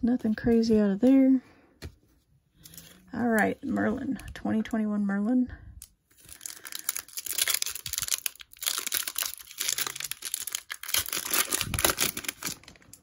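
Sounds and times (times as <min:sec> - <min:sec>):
foil wrapper crinkling: 0:06.1 - 0:13.0.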